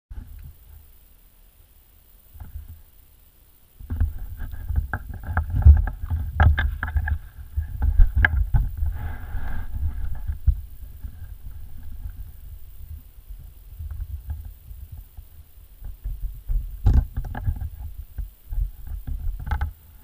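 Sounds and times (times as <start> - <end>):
wheels rolling on asphalt: 3.9 - 20.0
board knocking and bumping: 15.8 - 19.8.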